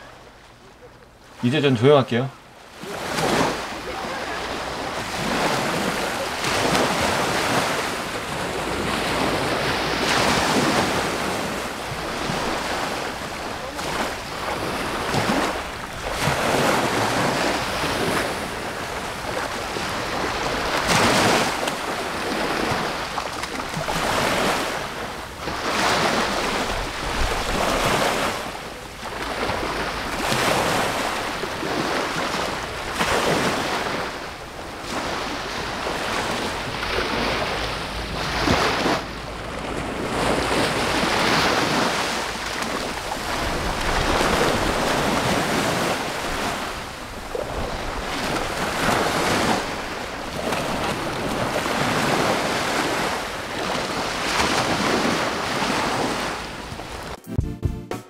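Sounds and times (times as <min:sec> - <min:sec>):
waves lapping against seawall: 0:00.0 - 0:57.2
wind rumbling on microphone: 0:04.6 - 0:57.2.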